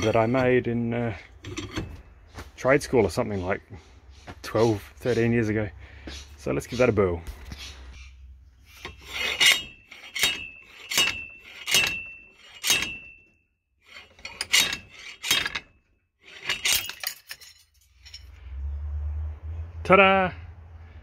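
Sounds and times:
slide hammer metallic clanks: 8.8 - 18.3.

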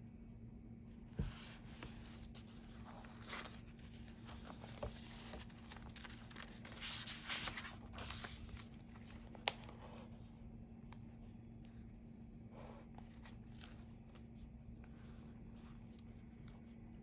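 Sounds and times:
faint steady hum: 0.0 - 17.0
paper rustling: 1.2 - 10.3, 12.6 - 17.0.

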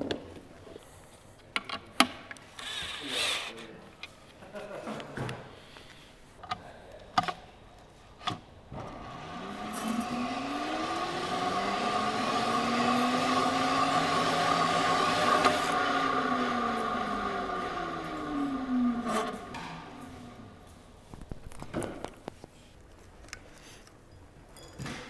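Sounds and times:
drill spinning gearbox whir: 2.6 - 3.5, 8.9 - 19.5.

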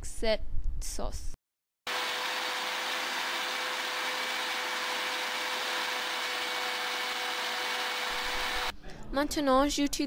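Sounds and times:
electric blender grinding: 1.9 - 8.7.

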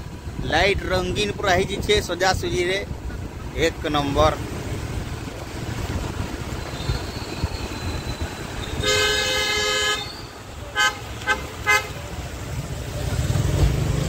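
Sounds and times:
vehicle horn honking: 8.6 - 12.0.

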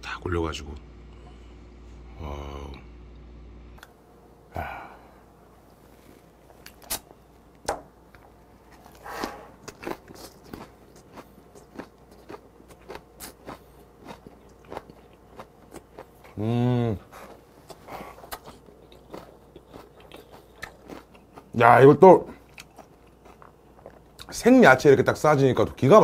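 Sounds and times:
crunchy chewing: 8.1 - 24.4.

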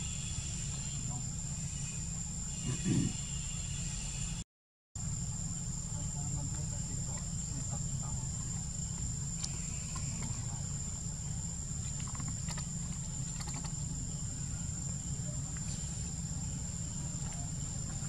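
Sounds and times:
insects droning: 0.0 - 4.4, 5.0 - 18.0
faint clicks and rustles: 11.8 - 13.9.

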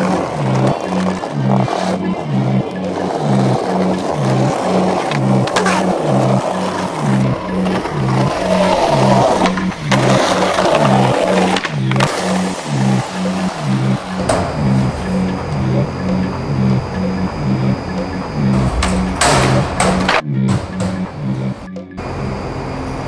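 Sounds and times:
skateboard clacks: 0.0 - 17.3
skateboard wheels rolling on pavement: 0.0 - 20.2
music with repeating bass line: 0.0 - 22.6.

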